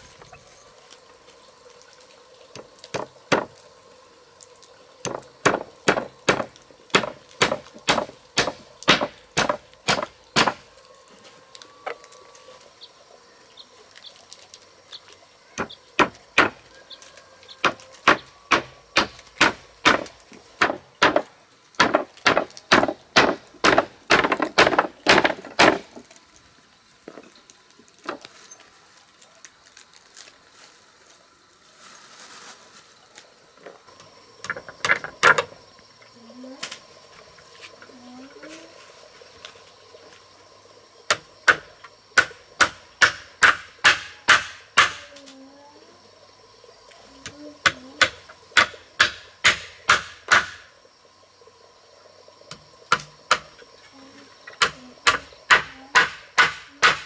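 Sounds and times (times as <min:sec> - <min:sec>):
hammer driving nails into wood: 0:05.1 - 0:10.6, 0:42.2 - 0:45.0.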